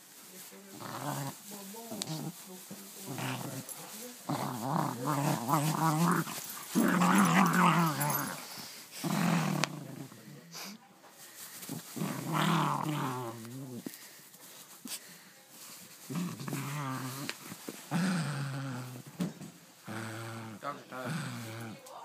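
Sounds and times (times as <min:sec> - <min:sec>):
dog growling: 0:00.7 - 0:02.4, 0:03.0 - 0:10.5, 0:11.6 - 0:14.0, 0:16.1 - 0:21.9.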